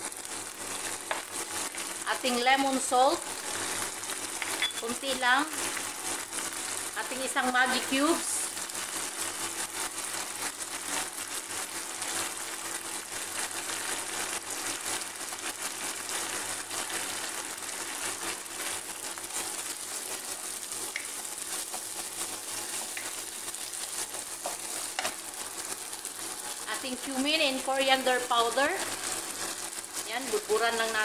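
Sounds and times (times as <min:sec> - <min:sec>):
rice sizzling in a frying pan: 0:00.0 - 0:31.0
wooden spoon stirring: 0:19.9 - 0:26.6.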